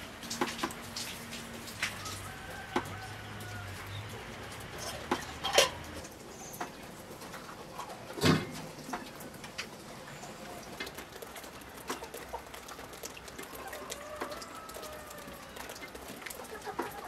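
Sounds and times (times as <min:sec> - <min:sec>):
chickens clucking: 0:13.4 - 0:17.0.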